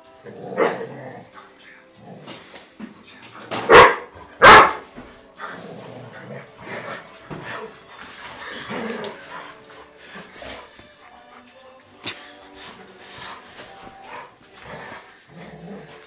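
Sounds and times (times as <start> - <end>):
quiet dog noises: 0.6 - 16.0
dogs barking: 3.5 - 5.0.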